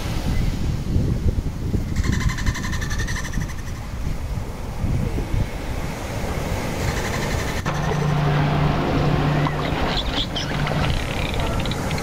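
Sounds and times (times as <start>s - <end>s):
underwater rushing water: 4.0s - 12.0s
low steady hum: 7.6s - 12.0s.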